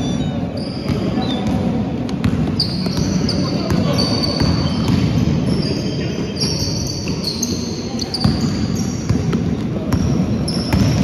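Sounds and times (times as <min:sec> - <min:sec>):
sneaker squeaks on court: 0:00.0 - 0:11.0
basketball bouncing: 0:00.8 - 0:05.4, 0:08.2 - 0:11.0.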